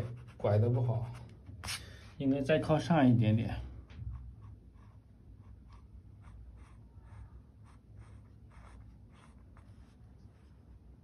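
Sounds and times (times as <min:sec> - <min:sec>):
pencil scratching on paper: 0:00.0 - 0:01.8, 0:04.1 - 0:10.8.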